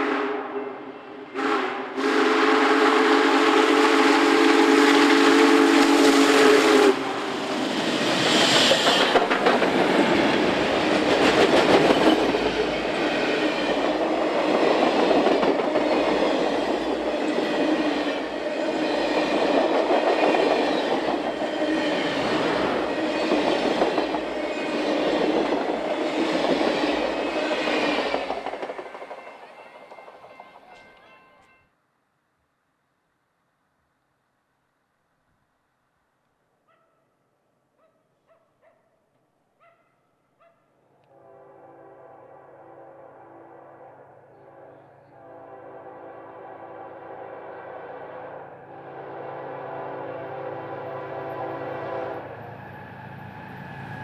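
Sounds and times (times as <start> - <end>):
steam whistle blast: 0.0 - 7.4, 41.1 - 54.0
wheels clattering over rail joints: 8.2 - 14.0.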